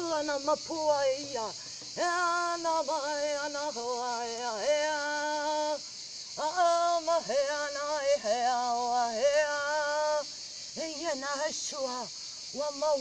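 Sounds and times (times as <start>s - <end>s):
woman chanting without words: 0.0s - 5.8s
crickets shrilling: 0.0s - 13.0s.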